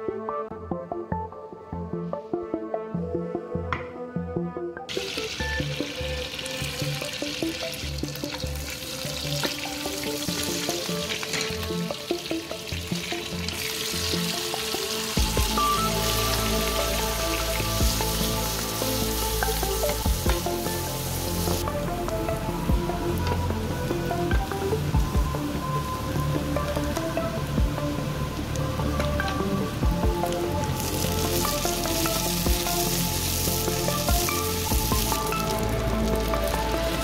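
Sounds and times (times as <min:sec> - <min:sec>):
butter sizzling in a pan: 0:04.9 - 0:21.7, 0:30.7 - 0:37.0.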